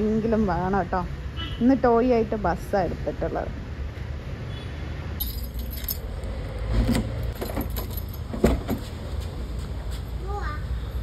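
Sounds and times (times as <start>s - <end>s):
keys jangling: 5.2s - 6.1s, 7.3s - 8.8s.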